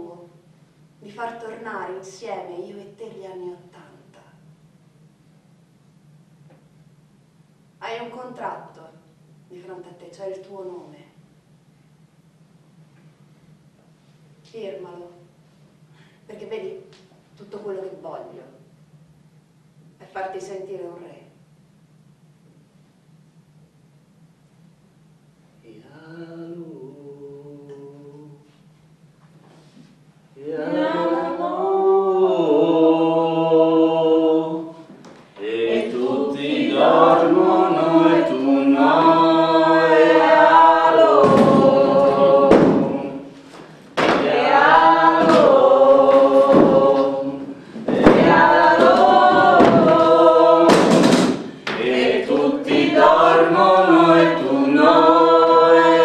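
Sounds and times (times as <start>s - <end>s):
choir singing: 30.4s - 56.0s.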